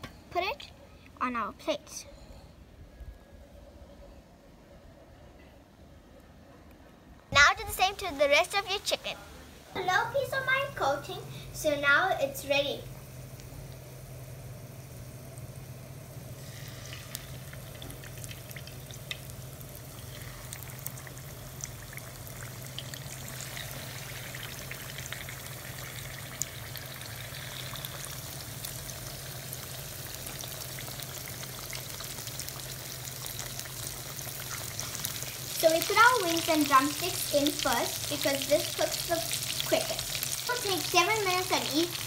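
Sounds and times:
steady low hum: 1.8 - 42.0
chicken frying in hot oil: 9.8 - 42.0.

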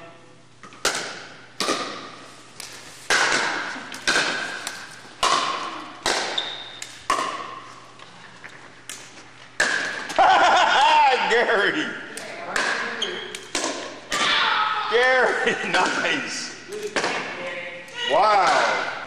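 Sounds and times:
paddles striking plastic ball: 0.6 - 7.6.

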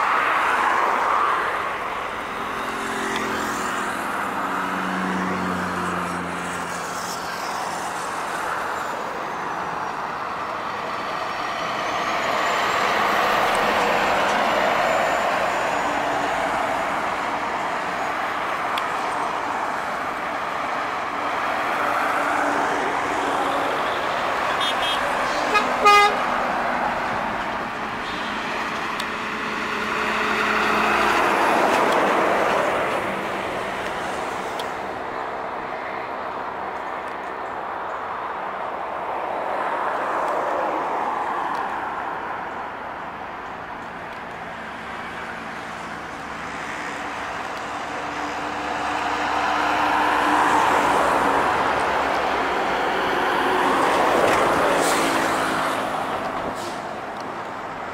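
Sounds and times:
heavy trucks driving past: 0.0 - 37.0, 38.4 - 57.9
double horn toot: 24.5 - 26.3.

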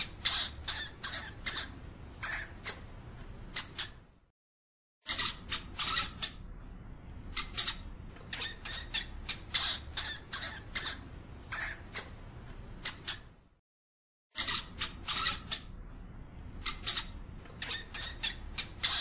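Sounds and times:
hamster squeaking harshly: 0.0 - 2.9, 3.5 - 4.0, 5.0 - 6.4, 7.3 - 12.2, 12.8 - 13.3, 14.3 - 15.8, 16.6 - 19.0.

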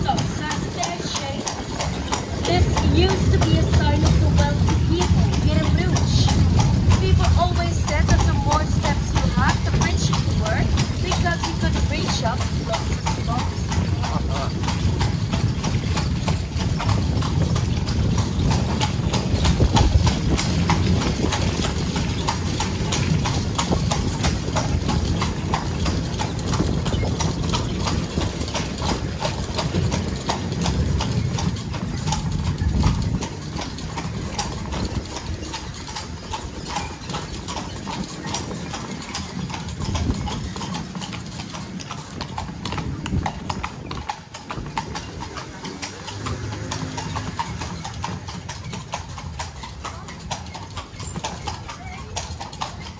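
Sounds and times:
carriage wheels rumbling over cobbles: 0.0 - 52.9
horse hooves on cobblestones: 0.0 - 52.9.

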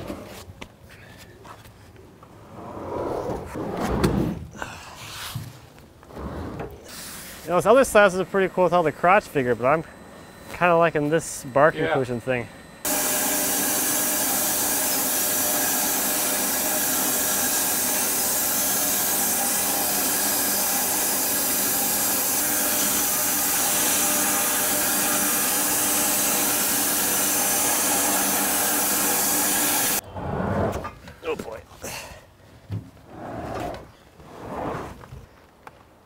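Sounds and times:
saw blade hissing through wood: 6.8 - 8.2, 12.8 - 30.0.

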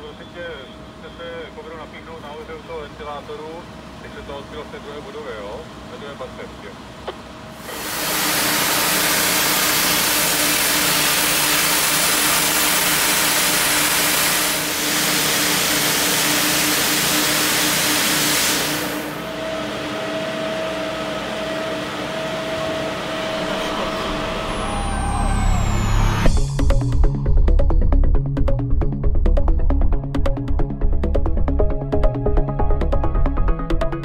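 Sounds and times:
machine hum: 7.1 - 34.0
hose nozzle spraying water: 7.6 - 19.2.

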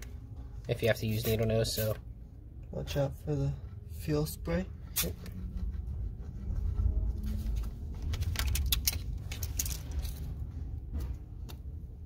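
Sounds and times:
steady low hum: 0.0 - 12.0
metallic tool clicks and rattles: 8.1 - 10.3.

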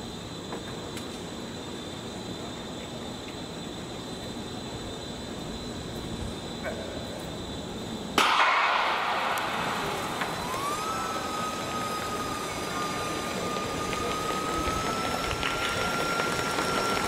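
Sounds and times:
stadium crowd noise: 8.1 - 17.0
siren-like tone: 9.5 - 17.0.

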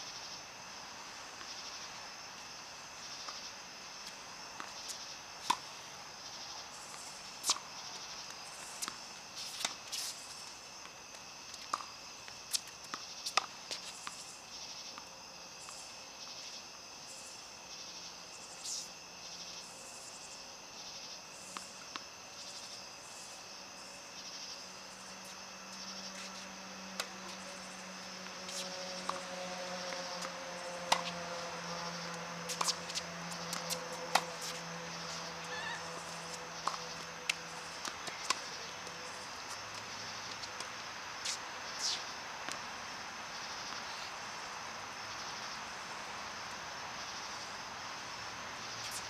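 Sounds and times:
tennis balls struck by rackets: 25.0 - 42.7.

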